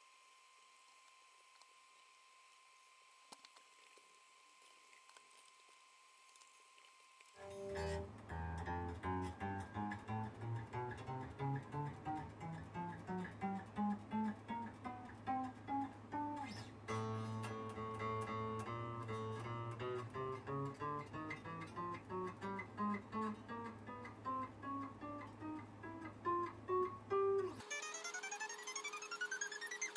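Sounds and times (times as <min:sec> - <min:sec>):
electric guitar note runs: 0:07.4 - 0:29.9.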